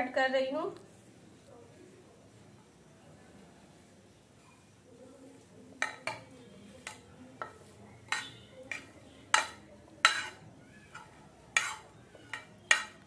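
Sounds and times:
spoon clinking on steel bowl: 5.8 - 13.0
spoon scraping a plate: 5.8 - 13.0.

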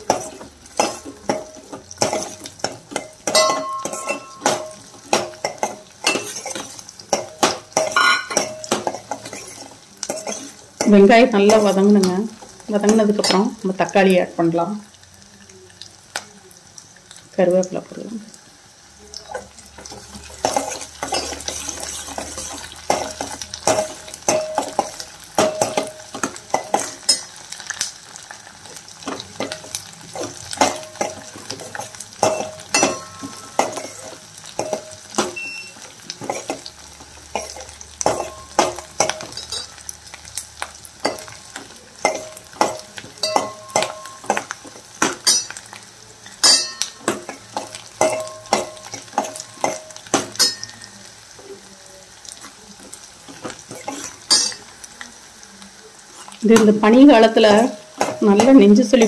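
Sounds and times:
oil sizzling in a pot: 0.0 - 59.0
ladle clinking against pot: 0.1 - 10.9, 30.2 - 36.7, 42.0 - 45.7, 46.3 - 51.0.

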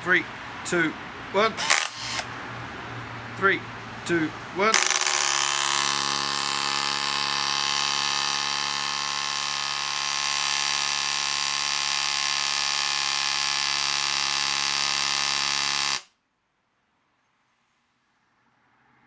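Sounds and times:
nailer buzzing: 1.5 - 2.3, 4.7 - 16.1.

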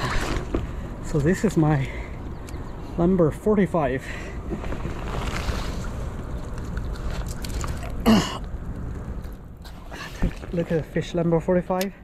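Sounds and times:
low rushing outdoor rumble: 0.6 - 9.7.

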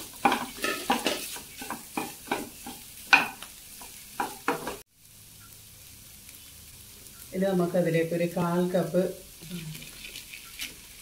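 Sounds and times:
spatula scraping a pan: 0.0 - 4.8
faint steady hiss: 1.2 - 11.0.

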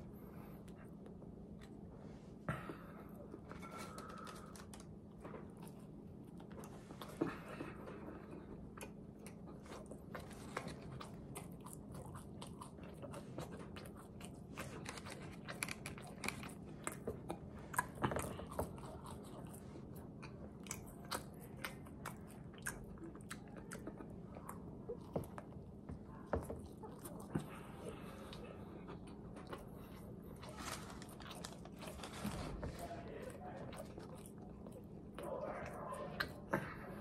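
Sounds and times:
crunchy chewing: 2.6 - 37.0.

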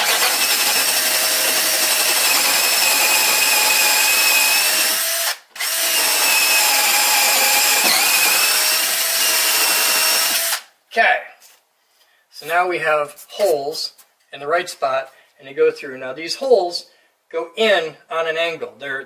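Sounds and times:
drill whining boring through wood: 0.0 - 10.7.

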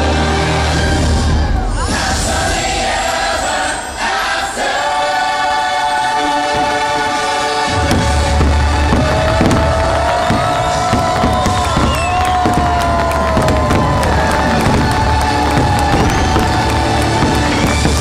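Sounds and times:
choir singing held notes: 0.0 - 18.0
orchestral music: 0.0 - 18.0
fireworks bursting low rumble: 7.7 - 18.0.

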